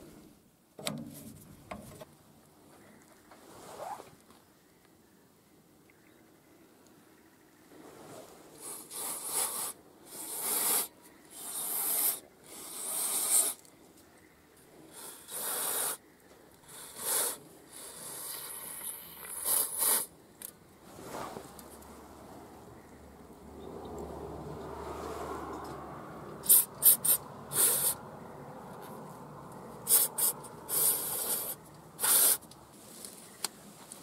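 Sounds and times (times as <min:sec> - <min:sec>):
aerosol spray hissing bursts: 0:26.4 - 0:28.0, 0:29.9 - 0:32.4.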